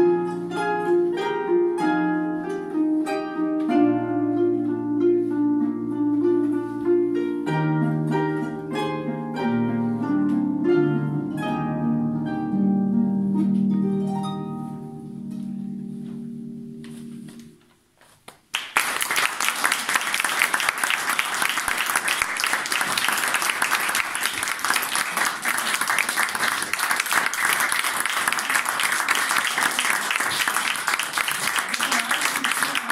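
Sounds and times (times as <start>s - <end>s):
audience applause: 18.5s - 32.9s.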